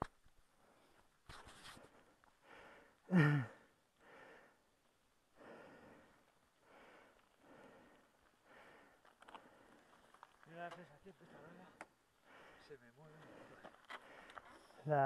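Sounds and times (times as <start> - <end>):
person breathing hard: 1.9 - 4.6, 5.4 - 10.1, 11.2 - 14.8
voiced sigh: 3.1 - 4.5.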